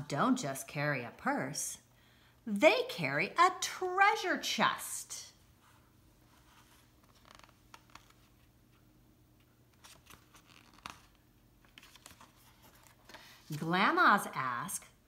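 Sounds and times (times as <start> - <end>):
paper page turning: 6.3 - 8.6, 9.7 - 13.7
book rustling and tapping: 6.4 - 8.8, 9.4 - 13.6.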